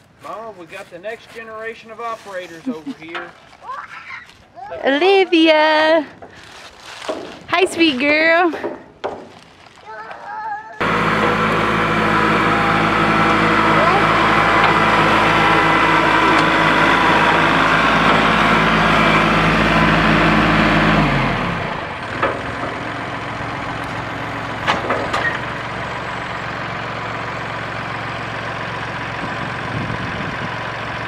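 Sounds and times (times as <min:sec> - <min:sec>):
tractor diesel engine running: 0:05.0 - 0:31.0
short knocks: 0:07.1 - 0:09.4.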